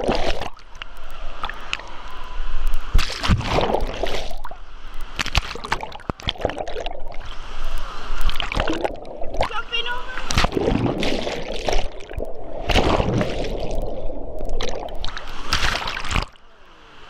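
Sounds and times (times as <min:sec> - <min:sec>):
water churning and sloshing: 0:00.0 - 0:02.2, 0:02.9 - 0:16.4
muffled underwater bubbling: 0:02.9 - 0:04.6, 0:05.3 - 0:07.3, 0:08.2 - 0:16.4.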